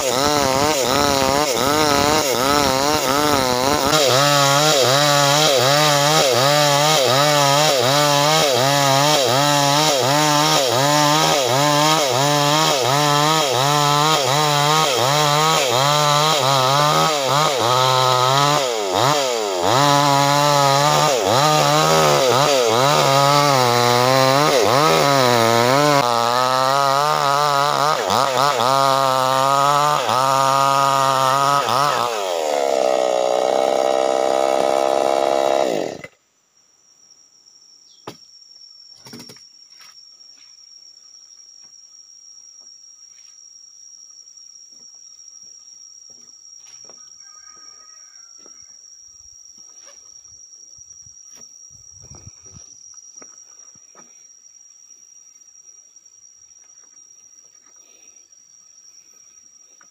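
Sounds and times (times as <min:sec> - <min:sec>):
chainsaw cutting log: 0:00.0 - 0:36.2
high insect whine: 0:08.5 - 0:59.9.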